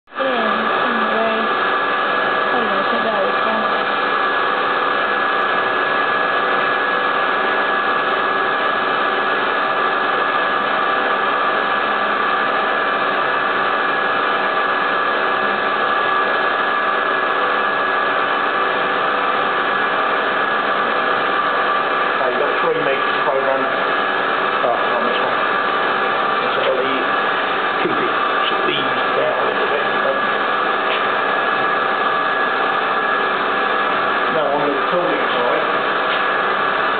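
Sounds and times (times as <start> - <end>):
milling spindle whine: 0.1 - 36.9.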